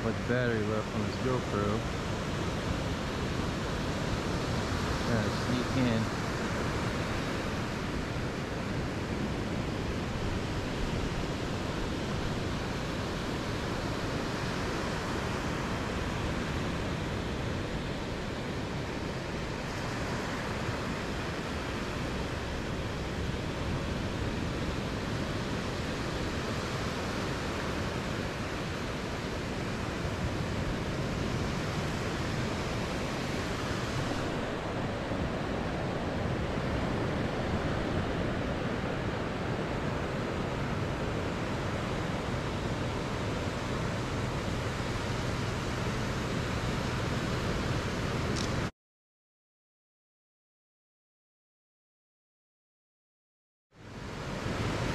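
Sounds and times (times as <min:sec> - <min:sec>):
ocean surf breaking: 0:00.0 - 0:48.7.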